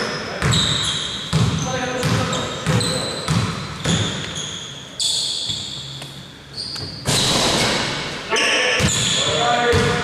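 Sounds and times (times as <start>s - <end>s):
shoes squeaking: 0.0s - 9.8s
basketball bouncing: 0.4s - 4.4s, 8.7s - 10.0s.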